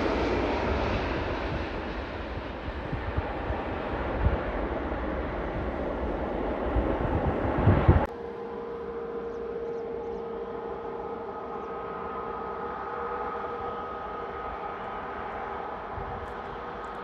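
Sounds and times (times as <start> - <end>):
jet engine whine: 0.0 - 17.0
jet engines roaring at takeoff: 0.0 - 17.0.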